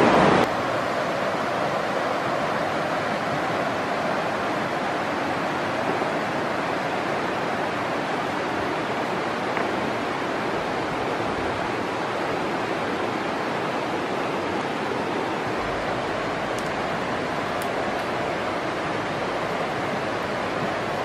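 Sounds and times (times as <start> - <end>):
steady rushing noise: 0.0 - 21.0.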